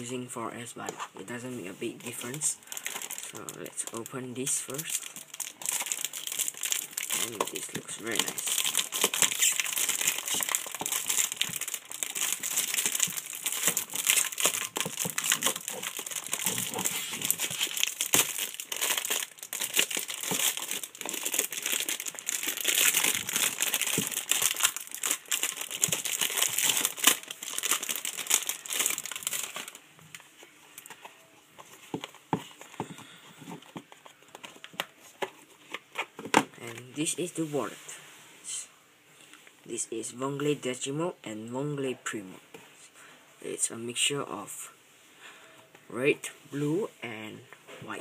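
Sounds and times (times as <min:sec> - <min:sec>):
plastic bag crinkling: 0:01.9 - 0:30.2.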